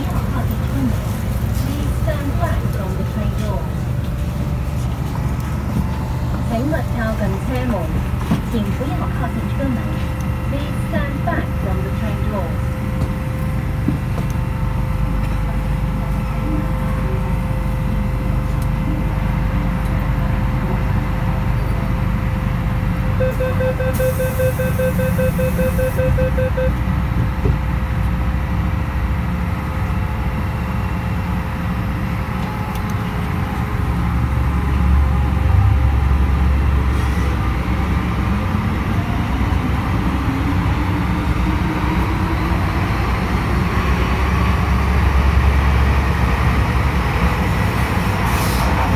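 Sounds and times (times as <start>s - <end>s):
train interior low rumble: 0.0s - 48.9s
quick beeps: 23.2s - 26.8s.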